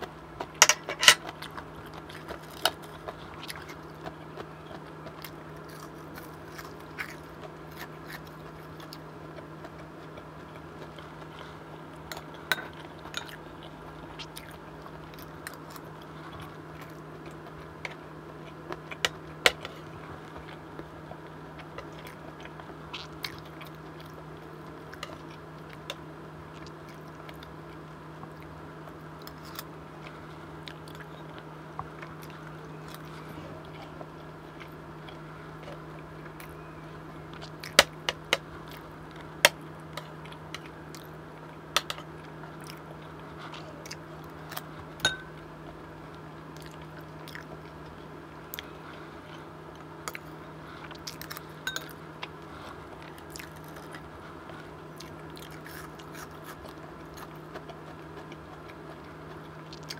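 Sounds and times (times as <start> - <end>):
chewing and crunching: 0.0 - 59.9
steady low hum: 0.0 - 59.9
spoon clinking on bowl: 45.1 - 45.3.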